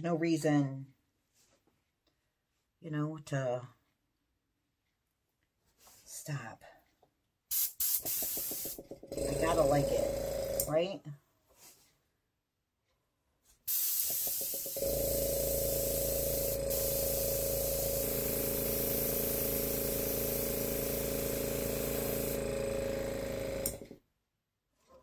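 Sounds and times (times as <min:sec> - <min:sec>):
airbrush hissing air: 0:07.5 - 0:08.9, 0:13.7 - 0:23.0
air compressor motor hum: 0:07.5 - 0:10.7, 0:13.7 - 0:24.0.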